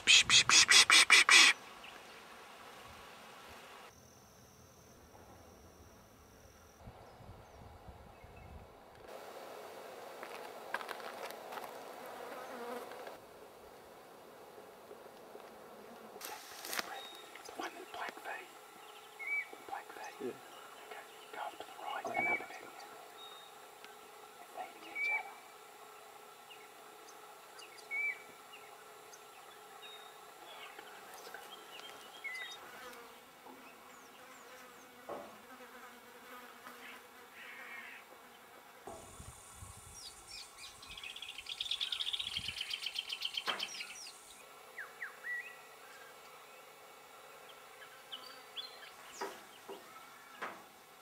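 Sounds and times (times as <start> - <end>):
birds chirping and whistling: 18.9 - 23.5, 24.8 - 25.3, 27.7 - 28.2.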